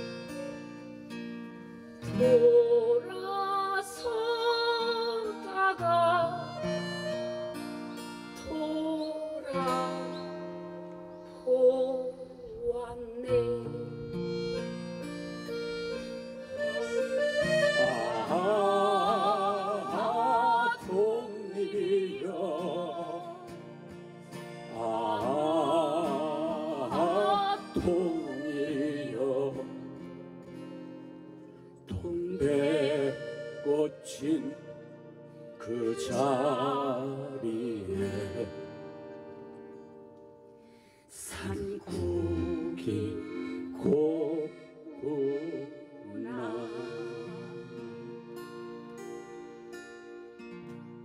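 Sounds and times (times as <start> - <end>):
accordion chords: 0.0 - 12.2, 13.3 - 40.0, 41.6 - 51.0
woman singing with vibrato: 2.1 - 7.0, 8.4 - 10.4, 11.3 - 14.2, 17.6 - 23.6, 24.7 - 29.5, 41.2 - 48.1.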